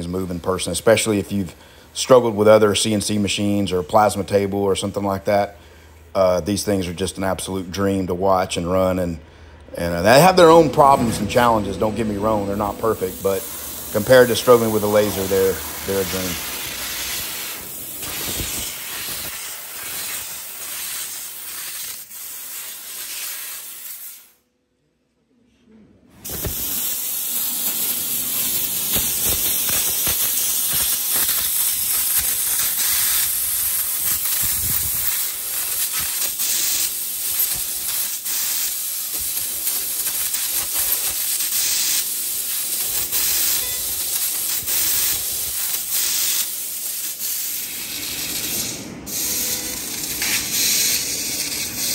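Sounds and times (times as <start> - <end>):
hiss of gas jet: 10.2 - 24.4, 26.2 - 51.9.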